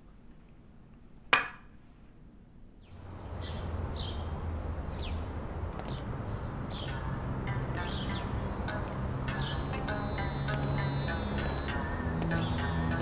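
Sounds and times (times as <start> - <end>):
birds chirping: 4.9 - 13.0.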